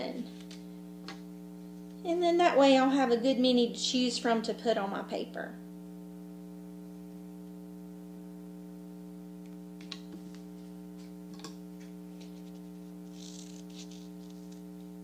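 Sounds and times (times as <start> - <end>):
electrical hum: 0.0 - 15.0
paper handling clicks: 11.8 - 14.9.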